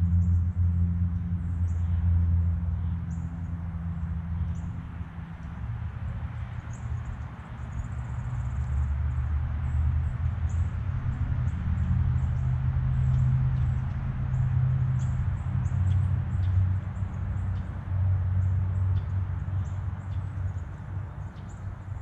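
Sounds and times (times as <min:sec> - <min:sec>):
steady low rumble: 0:00.0 - 0:06.2.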